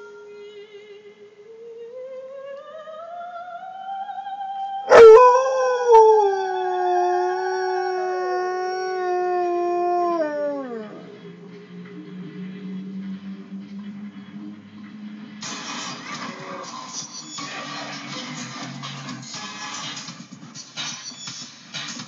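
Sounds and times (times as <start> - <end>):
soprano singing opera: 0.0 - 8.0
dog howling: 4.9 - 11.4.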